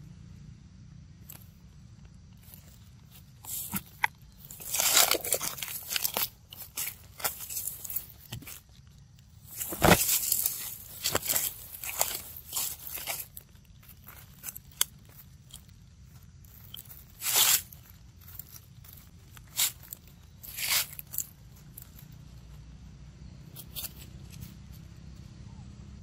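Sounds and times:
low steady rumble: 0.0s - 26.0s
footsteps crunching dry leaves: 2.4s - 22.6s.

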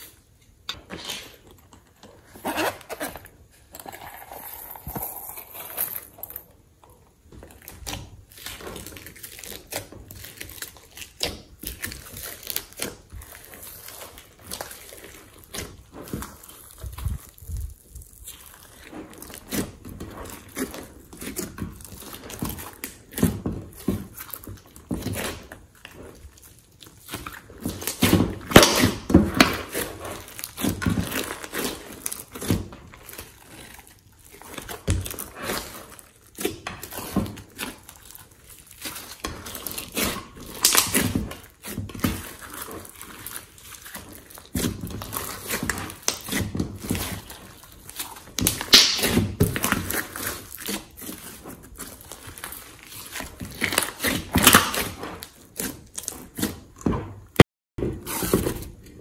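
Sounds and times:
slime squishing and crackling: 0.8s - 57.4s.

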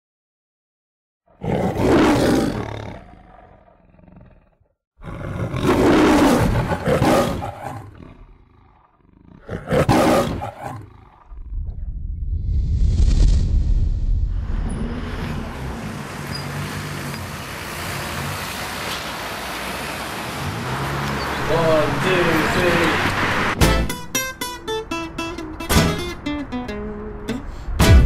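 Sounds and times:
lion roaring: 1.3s - 11.9s.

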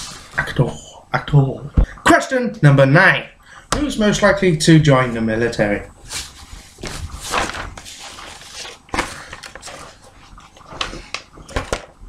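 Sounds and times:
paper rustling: 6.0s - 11.9s.

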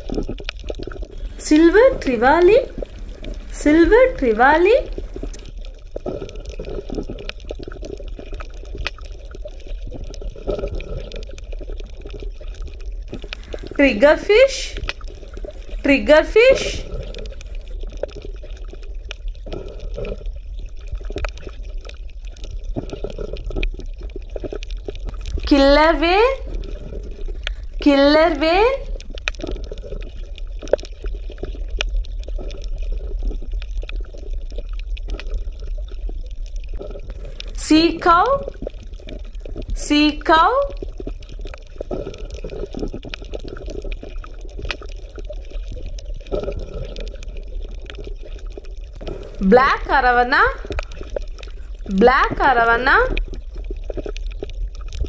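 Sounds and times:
underwater bubbling and gurgling: 0.0s - 55.0s
steady low hum: 1.2s - 5.5s.

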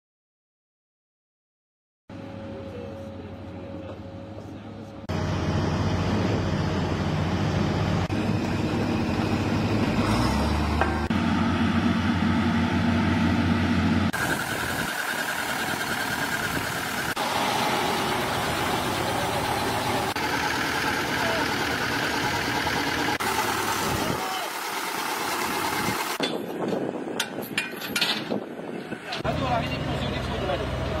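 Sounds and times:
construction machinery engines humming: 2.1s - 31.0s.

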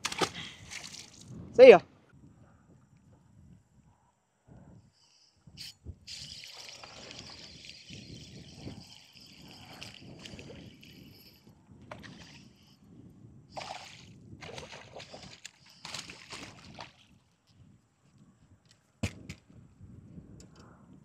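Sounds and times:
wind and water: 0.0s - 21.0s
fishing reel being cranked: 5.6s - 11.5s.

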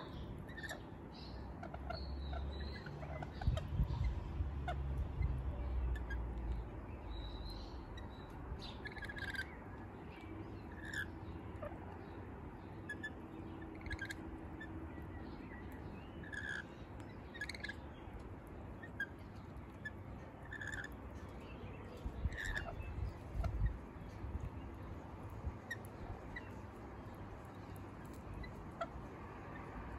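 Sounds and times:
birds chirping: 0.0s - 29.9s
low background rumble: 0.0s - 29.9s.

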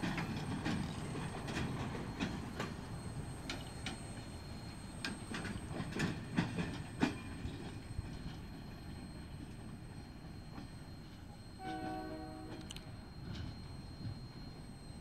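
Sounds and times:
train wheels clicking over rail joints: 0.0s - 8.4s
train rumble: 0.0s - 15.0s.

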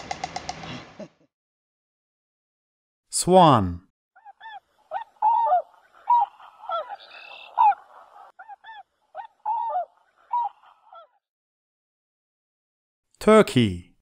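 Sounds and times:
swan honking: 4.2s - 11.1s.

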